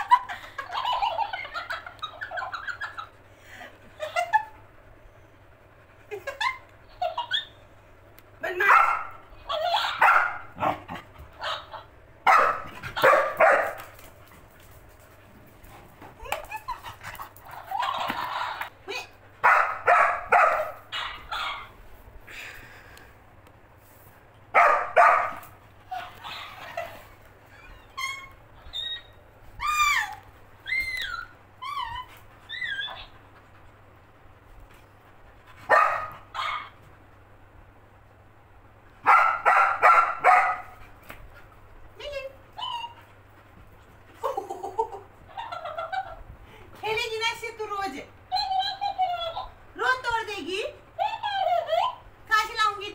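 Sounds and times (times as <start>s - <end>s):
dog barking: 8.6s - 9.2s, 9.9s - 10.8s, 12.3s - 13.8s, 19.4s - 21.6s, 24.6s - 25.4s, 35.7s - 36.7s, 39.0s - 40.8s
dog whining: 25.8s - 33.6s, 35.7s - 36.9s.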